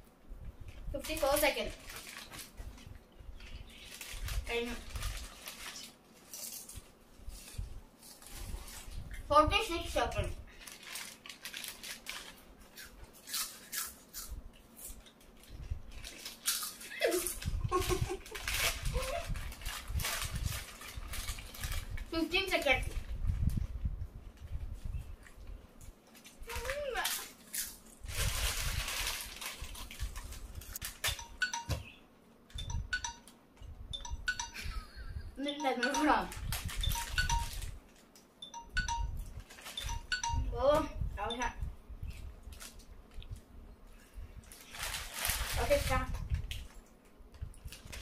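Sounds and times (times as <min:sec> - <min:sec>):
plastic chip packets crinkling: 0:01.0 - 0:02.6, 0:03.7 - 0:06.8, 0:10.5 - 0:13.8, 0:15.1 - 0:22.7, 0:26.2 - 0:31.6, 0:44.4 - 0:46.8
chips being crunched: 0:16.0 - 0:17.4.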